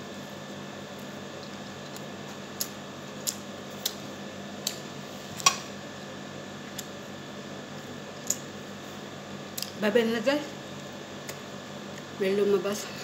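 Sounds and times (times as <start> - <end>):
background hum: 0.0 - 13.0
chewing clicks and smacks: 1.9 - 4.0, 10.7 - 12.1.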